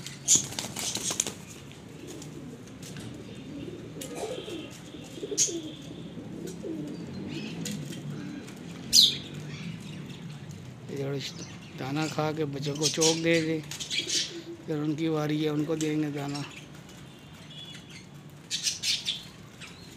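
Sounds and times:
pigeons cooing: 0:00.0 - 0:16.6
wings flapping: 0:00.2 - 0:03.1.

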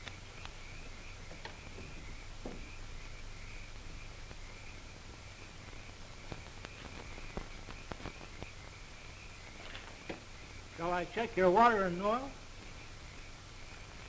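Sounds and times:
faint clicks: 0:00.0 - 0:00.6, 0:06.2 - 0:08.6
film soundtrack hum and hiss: 0:00.0 - 0:14.0.

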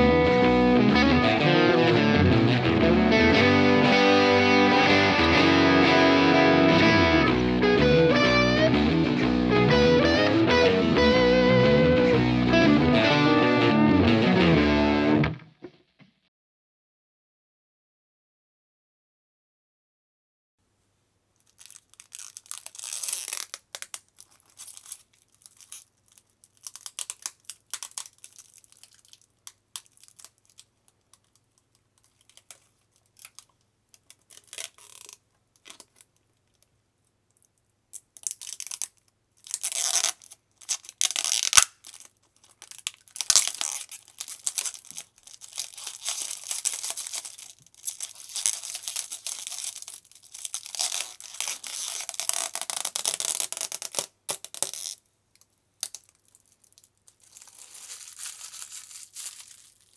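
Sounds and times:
plastic film peeling and crackling: 0:21.4 - 0:36.7, 0:37.3 - 0:59.9.

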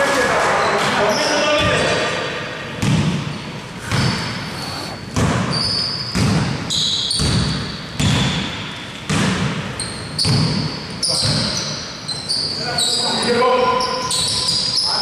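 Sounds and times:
sneaker squeaks: 0:00.6 - 0:01.9, 0:02.8 - 0:15.0
basketball dribbling: 0:02.8 - 0:08.5.

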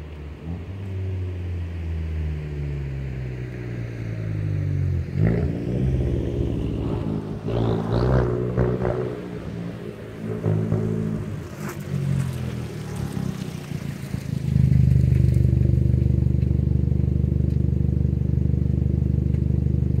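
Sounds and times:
car engine drone: 0:00.0 - 0:20.0
car accelerating past: 0:00.4 - 0:16.4.

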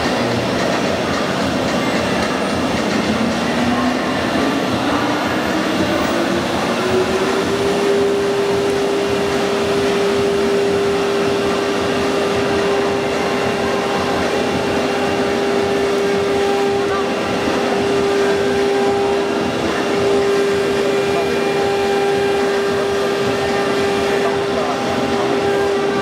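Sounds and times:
router spindle cutting: 0:00.0 - 0:26.0.

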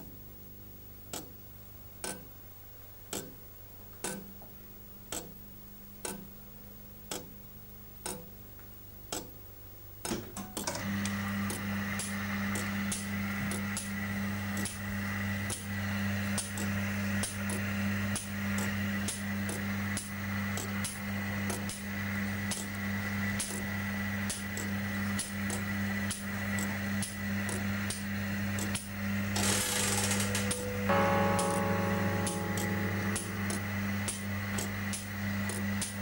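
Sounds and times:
clock ticking: 0:06.0 - 0:06.3, 0:08.0 - 0:08.3, 0:30.0 - 0:35.6
clock gears clicking: 0:28.6 - 0:36.0
machine hum: 0:29.1 - 0:36.0.

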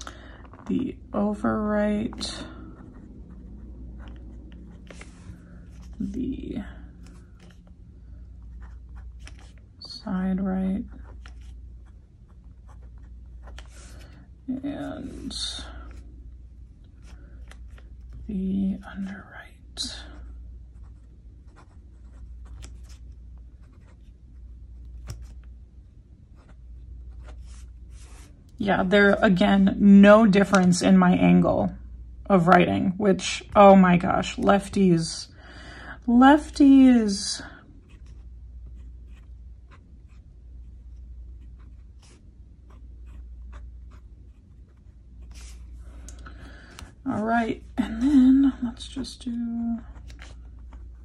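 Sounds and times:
low steady hum: 0:00.0 - 0:51.0
pen nib scratching paper: 0:41.4 - 0:45.6.

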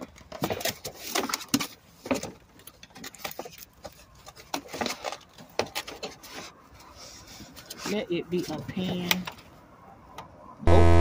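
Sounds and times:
cardboard packaging rummaged: 0:00.0 - 0:06.5.

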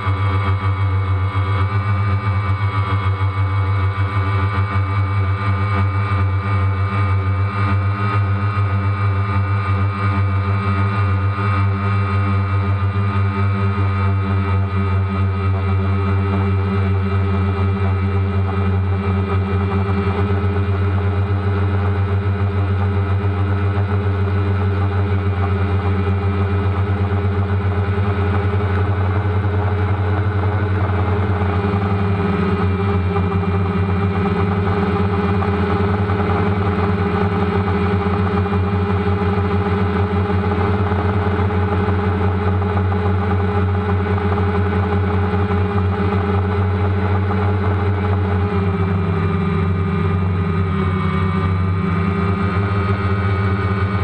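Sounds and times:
drone propellers humming: 0:00.0 - 0:54.0.

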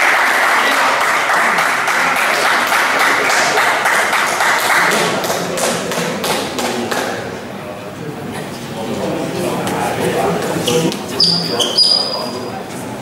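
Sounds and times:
spectators clapping: 0:00.0 - 0:07.3.

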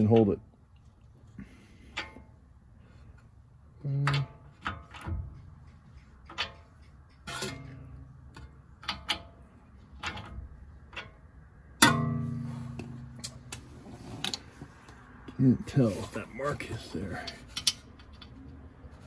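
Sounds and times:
metallic ringing clank: 0:11.8 - 0:13.7.

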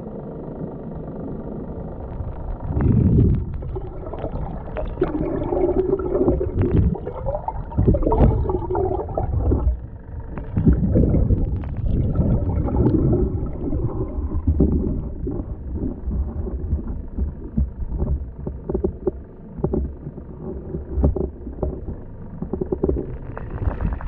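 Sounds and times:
underwater gurgling and sloshing: 0:00.0 - 0:24.0
wavering hum: 0:00.0 - 0:24.0
low rumble: 0:00.6 - 0:24.0.

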